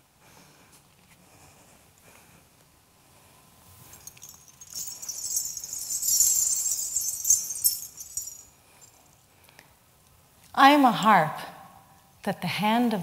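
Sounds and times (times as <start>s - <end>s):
ankle bells jingling: 3.9s - 9.1s.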